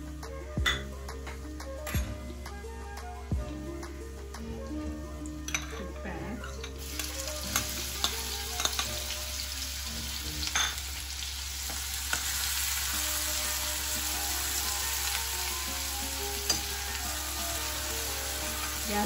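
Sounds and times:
steel spoon clinking against pan: 5.5 - 9.1, 16.4 - 16.7
onion sizzling in hot oil: 6.1 - 19.0.

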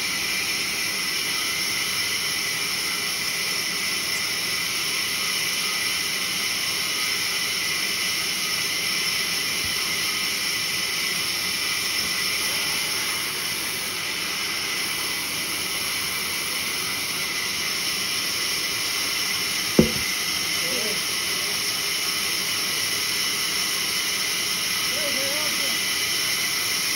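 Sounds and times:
band saw cutting log: 19.8 - 20.2.

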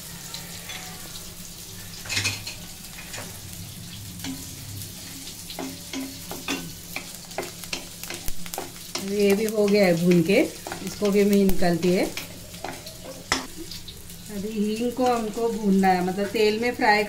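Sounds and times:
light sizzle: 0.0 - 17.0
wooden spatula scraping spices: 5.0 - 13.4.

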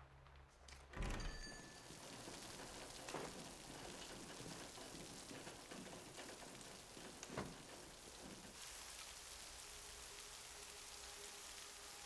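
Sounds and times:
steady rain falling: 1.6 - 12.0.

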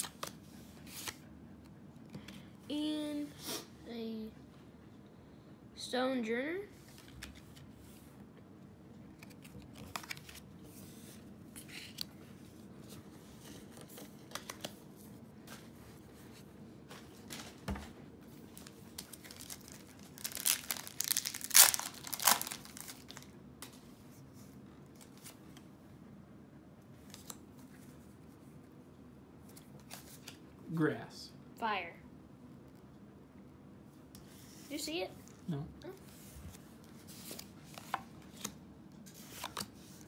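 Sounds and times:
trading cards rustling and clicking: 9.2 - 10.8, 12.8 - 14.9, 18.4 - 23.8, 36.0 - 40.0
foil wrapper crinkling and tearing: 18.5 - 23.3.

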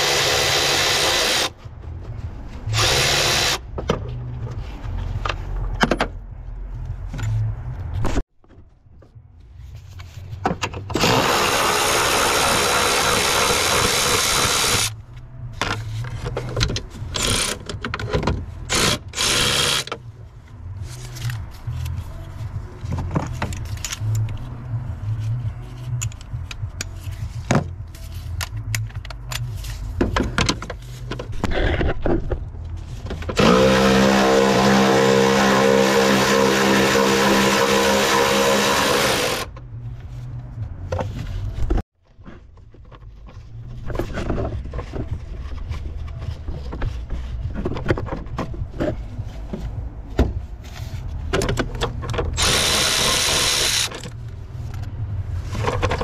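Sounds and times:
cordless electric ratchet running: 2.8 - 3.6, 11.0 - 14.9, 18.7 - 19.9, 52.4 - 54.1
tools clicking and knocking: 28.3 - 31.3.

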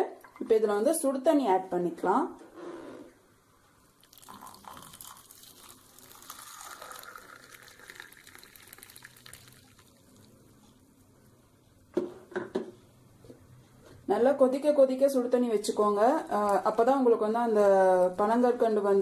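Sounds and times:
hot water pouring into mug: 4.0 - 10.4.

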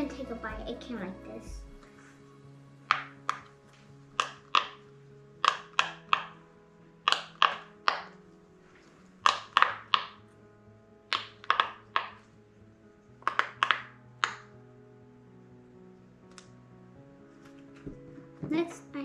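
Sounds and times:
quiet background music: 0.0 - 19.0
fidget toy bubbles popping: 9.3 - 10.2, 11.1 - 12.2, 13.2 - 14.4.

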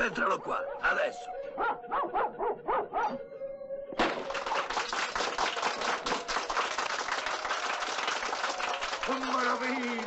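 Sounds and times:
crowd clapping: 4.0 - 10.0.

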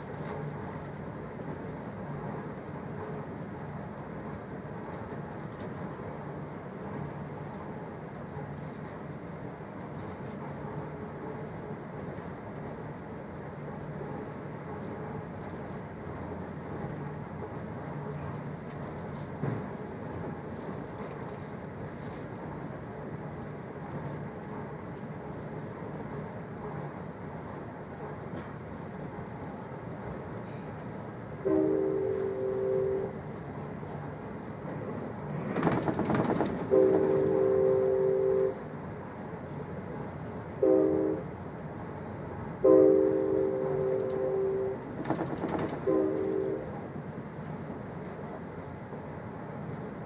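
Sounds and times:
train rumbling: 0.0 - 50.0
train horn blasts: 31.4 - 33.2, 36.6 - 38.6, 40.6 - 41.3, 42.6 - 44.9, 45.8 - 46.8.

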